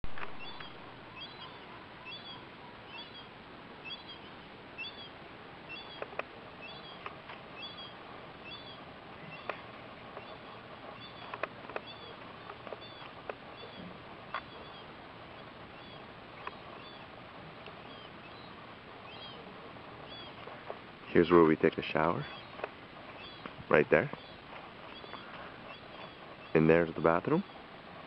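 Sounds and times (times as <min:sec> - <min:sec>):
faint outdoor hiss: 0:00.0 - 0:28.0
bird chirping: 0:00.1 - 0:27.8
sharp clicks: 0:06.0 - 0:06.3, 0:11.1 - 0:13.4.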